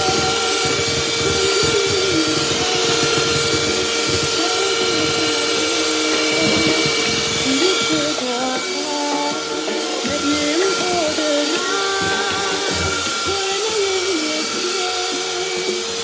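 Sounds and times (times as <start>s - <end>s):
electric hand mixer whisking batter: 0.0s - 16.0s.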